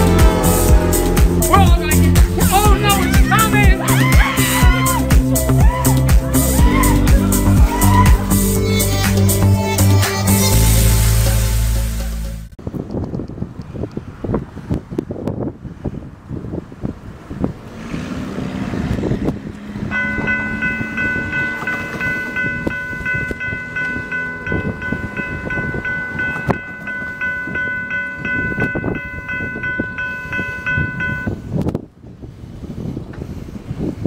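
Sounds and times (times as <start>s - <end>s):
low two-note horn: 0.0s - 3.2s
wind buffeting microphone: 12.6s - 34.0s
railroad crossing bell ringing: 19.8s - 31.5s.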